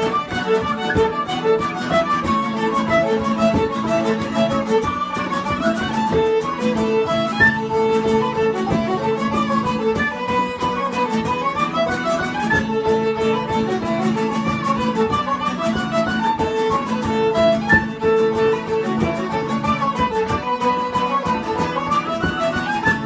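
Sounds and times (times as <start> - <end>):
fiddle and tin whistle melody: 0.0 - 23.0
frame drum beat: 0.0 - 23.0
strummed guitar: 0.0 - 23.0.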